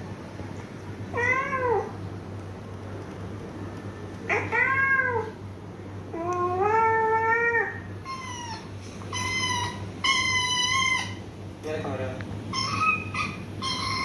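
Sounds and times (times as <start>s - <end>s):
cat meowing: 1.1s - 1.9s, 4.3s - 5.4s.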